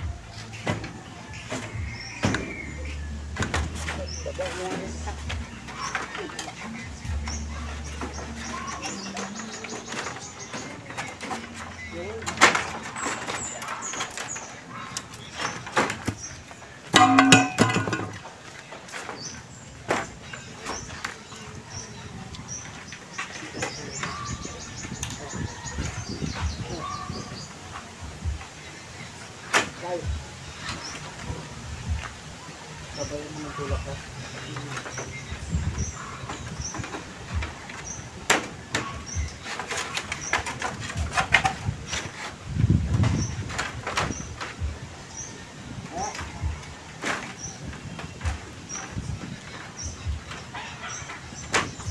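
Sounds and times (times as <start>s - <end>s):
bamboo knocking and clicking: 16.9s - 18.3s
sharp knocks on bamboo poles: 16.9s - 18.3s, 36.2s - 42.3s
bird chirping: 19.0s - 51.9s.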